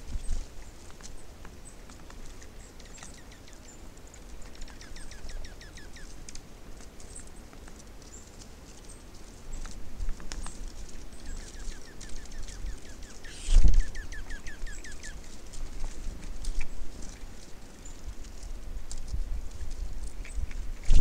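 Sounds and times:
small birds chip notes: 0.1 - 21.0
thin high bird calls: 0.2 - 6.2, 10.3 - 15.3.

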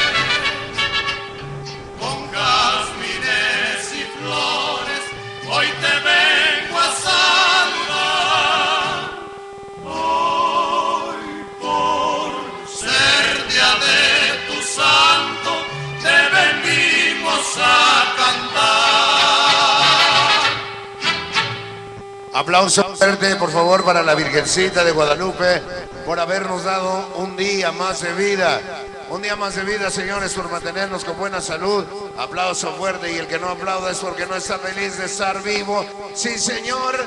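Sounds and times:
choir-like singing with vibrato: 0.0 - 21.8
steady underlying tone: 0.0 - 37.0.

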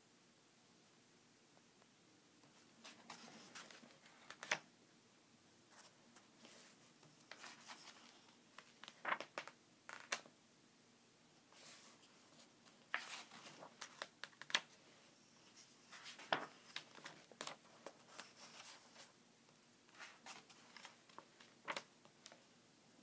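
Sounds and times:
book pages turning: 2.8 - 4.6, 5.8 - 10.3, 11.6 - 14.8, 15.5 - 19.1, 19.9 - 22.4.

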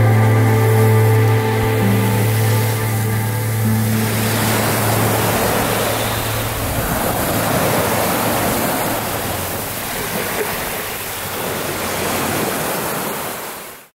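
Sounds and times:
low music note: 0.0 - 9.1
waves breaking on pebble beach: 0.3 - 13.9.

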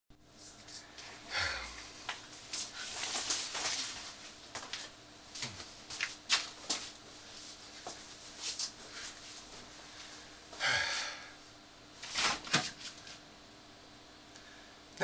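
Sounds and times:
cloth gown rustling: 2.4 - 4.9.

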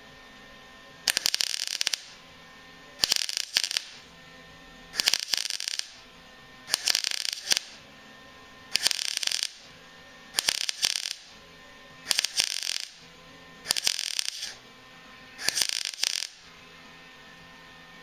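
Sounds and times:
welding arc crackling: 1.0 - 2.4, 3.0 - 4.1, 4.8 - 6.1, 6.7 - 7.9, 8.7 - 11.4, 12.0 - 14.6, 15.4 - 16.5.

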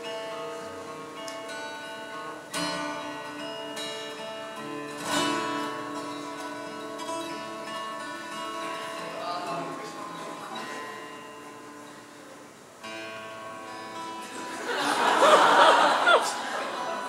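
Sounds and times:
acoustic guitar chords: 0.0 - 17.0.

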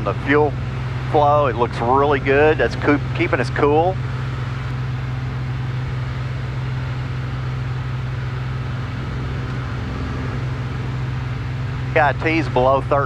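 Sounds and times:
aircraft engine and propeller droning: 0.0 - 13.0.

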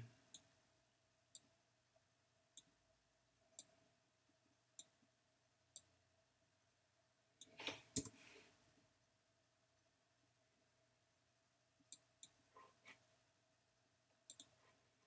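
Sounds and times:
computer mouse clicking: 14.3 - 14.6.

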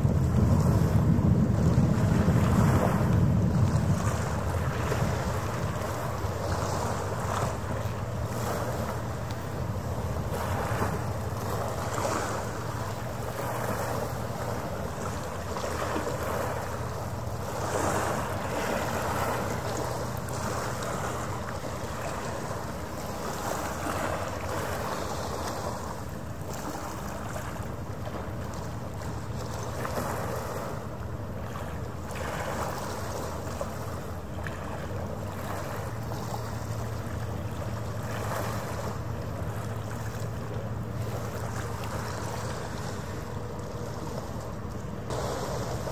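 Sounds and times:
wind on microphone: 0.0 - 27.5
steady low hum: 0.0 - 45.9
water washing against shore: 0.0 - 45.9.

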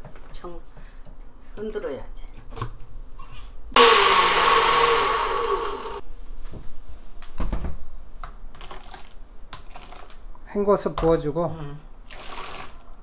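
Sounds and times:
blender running: 3.8 - 6.0.

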